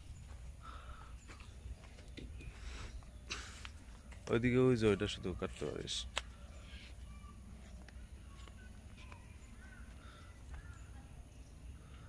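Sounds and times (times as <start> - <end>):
faint bird chirps: 4.8 - 12.0.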